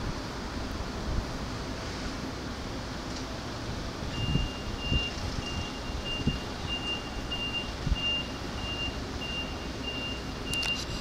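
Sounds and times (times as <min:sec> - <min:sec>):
high electronic warning beep: 0:04.1 - 0:11.0.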